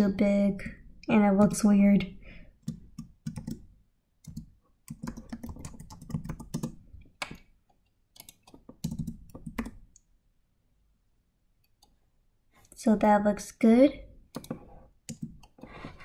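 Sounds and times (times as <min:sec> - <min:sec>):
typing on computer keyboard: 0:02.6 - 0:07.4, 0:08.1 - 0:10.0, 0:14.3 - 0:15.7.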